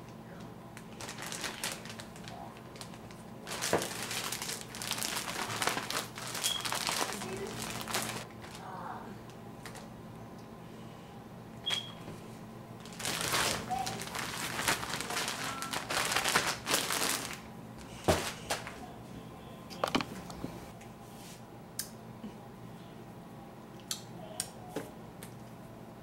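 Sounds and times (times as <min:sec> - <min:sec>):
plastic bag crinkling: 0:00.8 - 0:08.6, 0:12.8 - 0:18.8.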